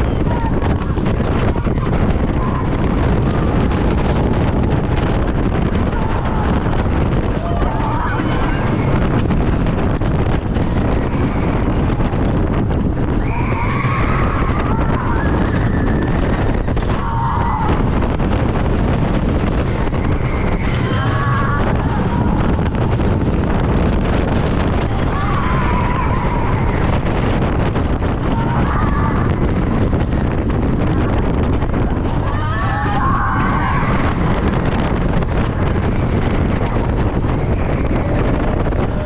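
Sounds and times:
roller coaster wheels rumbling: 0.0s - 39.0s
wind rushing over microphone: 0.0s - 39.0s
riders screaming: 5.0s - 9.2s, 13.1s - 18.3s, 19.3s - 30.2s, 31.6s - 39.0s.

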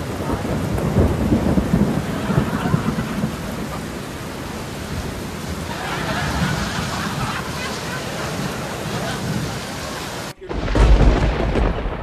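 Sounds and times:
steady rain: 0.0s - 12.0s
thunder rumbling: 0.0s - 12.0s.

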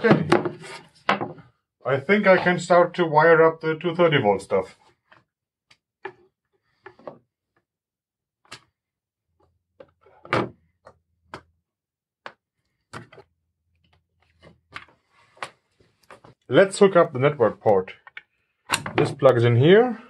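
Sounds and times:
clicks and taps of handling tools: 17.6s - 19.2s.

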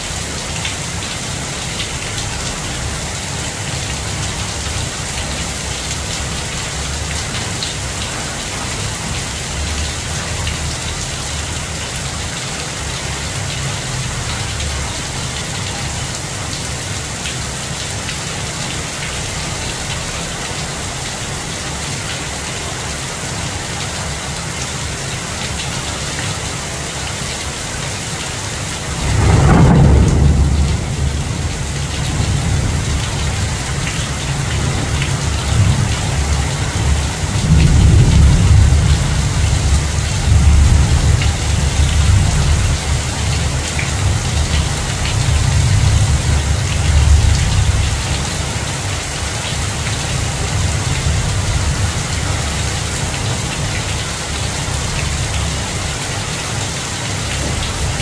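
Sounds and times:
heavy rain hissing through leaves: 0.0s - 58.0s
thunder crack and rumble: 28.6s - 48.6s.

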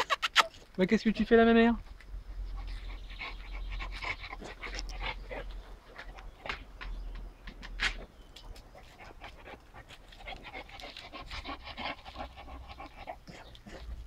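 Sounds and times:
dog panting: 2.4s - 6.5s, 8.6s - 14.0s.

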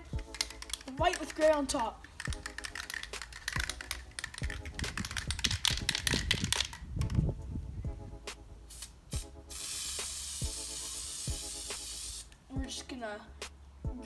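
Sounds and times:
spray paint can rattling: 0.0s - 7.3s, 8.7s - 12.4s.

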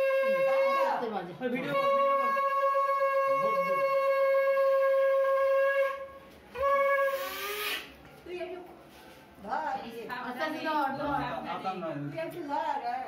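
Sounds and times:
conch shell blown: 0.0s - 1.0s, 1.7s - 8.0s.

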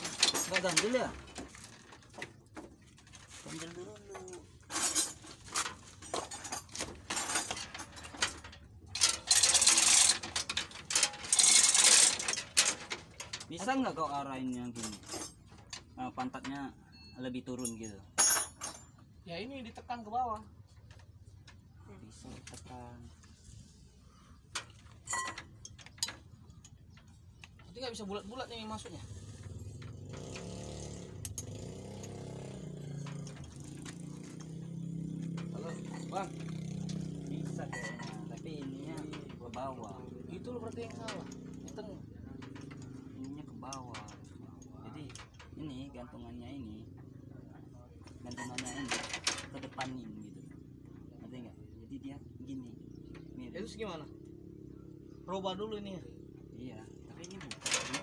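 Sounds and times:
chain hoist ratcheting clatter: 0.0s - 18.9s, 24.5s - 46.1s, 48.1s - 51.2s, 56.2s - 58.0s
metal clanks: 0.0s - 19.0s, 24.5s - 27.8s, 28.8s - 45.8s, 48.2s - 50.0s, 57.0s - 58.0s
engine running: 28.8s - 44.5s.

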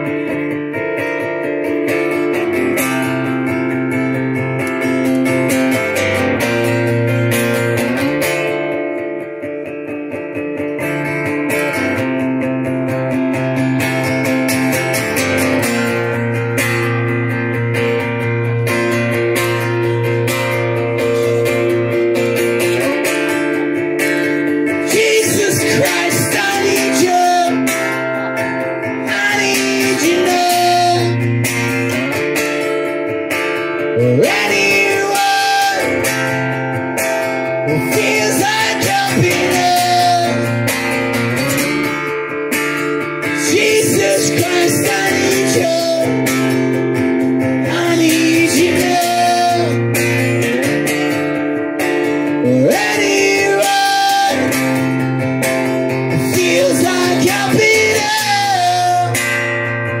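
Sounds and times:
acoustic guitar strumming: 0.0s - 60.0s
man singing: 24.2s - 31.3s, 33.9s - 36.4s, 37.6s - 40.7s, 43.3s - 46.7s, 47.6s - 50.3s, 52.4s - 55.0s, 56.1s - 59.4s.

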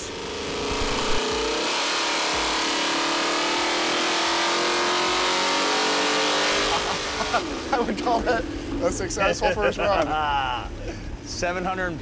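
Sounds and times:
engine revving at full throttle: 0.0s - 7.8s.

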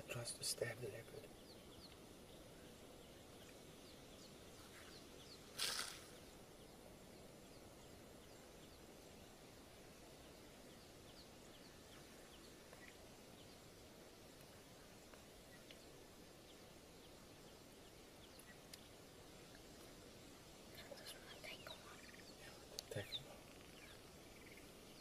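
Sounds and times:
small birds chirping: 0.0s - 25.0s
steady low hiss: 0.0s - 25.0s
loud rasping hiss: 5.5s - 6.2s.

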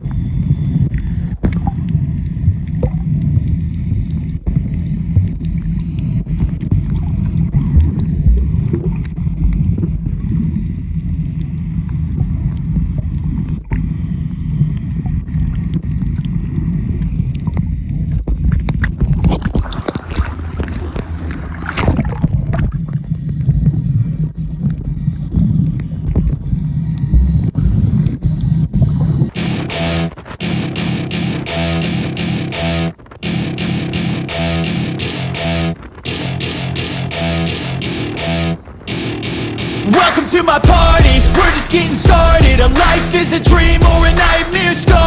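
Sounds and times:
boat engine rumbling: 27.1s - 45.0s
hissing rush: 38.8s - 45.0s.

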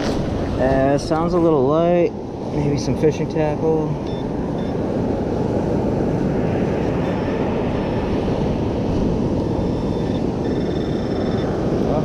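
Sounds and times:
wind buffeting microphone: 0.0s - 12.0s
metal detector electronic tone: 4.0s - 4.8s, 9.6s - 11.6s.

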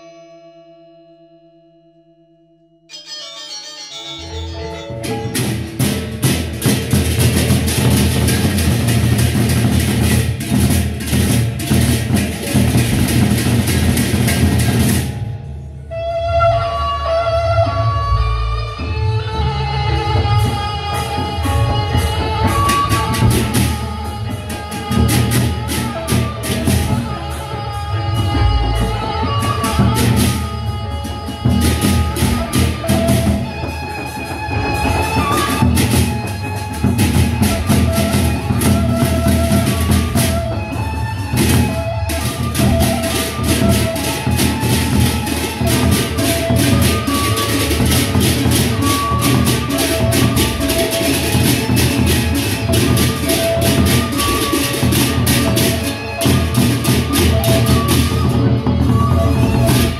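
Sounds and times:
ringing pitched gongs melody: 0.0s - 7.5s
ringing gongs: 0.0s - 15.4s
clashing cymbals: 2.9s - 15.9s, 20.5s - 59.9s
large barrel drums: 4.9s - 16.8s, 17.6s - 59.9s.

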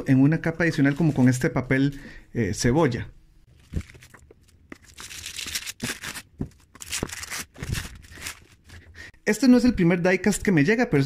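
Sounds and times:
tissue paper rustling: 3.5s - 8.9s.

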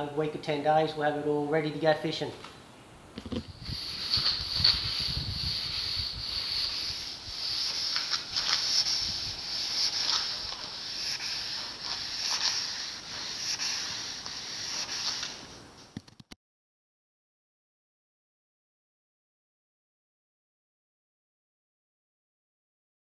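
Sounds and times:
sandpaper rubbing fibreglass: 3.3s - 15.6s.

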